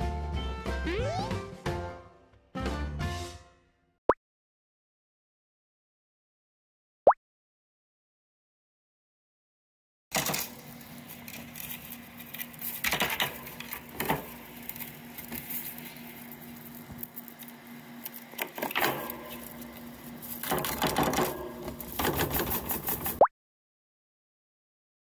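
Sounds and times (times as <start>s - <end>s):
rabbit claws scratching through hay: 10.2s - 23.2s.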